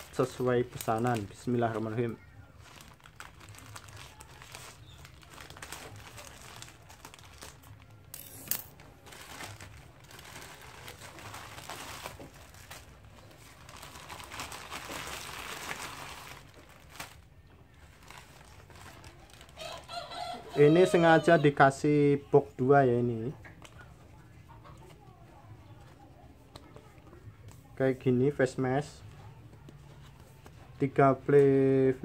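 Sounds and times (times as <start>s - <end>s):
plastic bag crinkling: 0.0s - 20.3s.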